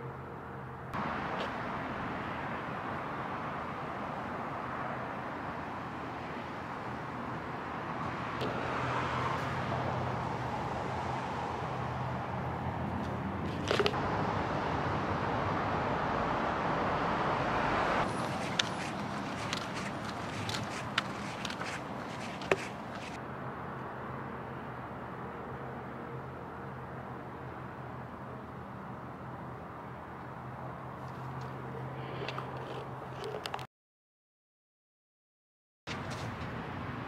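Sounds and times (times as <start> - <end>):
outdoor background noise: 0.0 - 33.7, 35.9 - 37.0
footsteps on pavement: 18.2 - 23.2.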